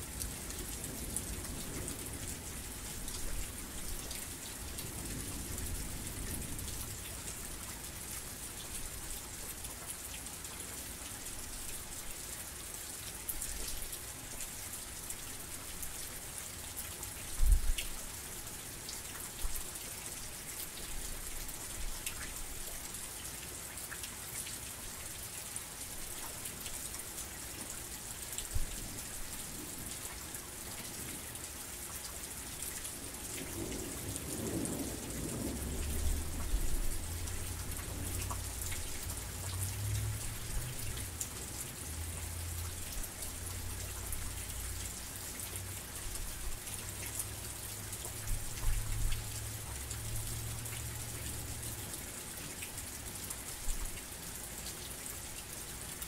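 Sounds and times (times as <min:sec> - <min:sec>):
heavy rain: 0:00.0 - 0:56.0
raindrops ticking: 0:35.5 - 0:45.7.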